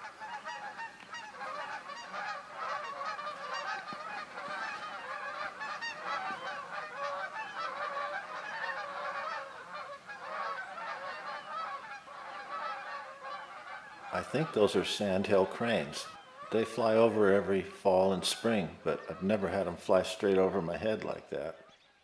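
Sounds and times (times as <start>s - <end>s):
cranes calling: 0.0s - 19.7s.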